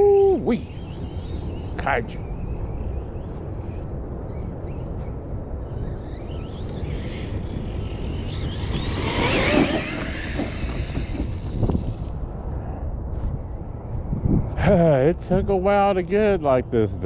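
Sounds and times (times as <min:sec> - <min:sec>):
toy truck electric motor whining: 0:00.6 - 0:12.2.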